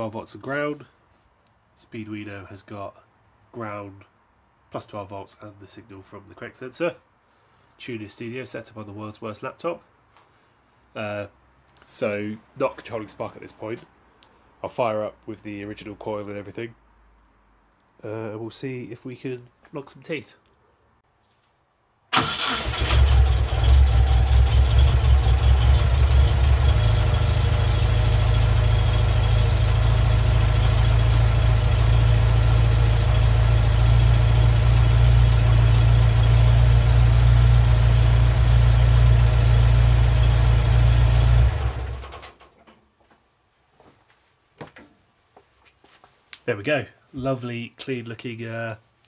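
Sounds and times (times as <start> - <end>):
car engine starting and idling: 22.1 - 42.4.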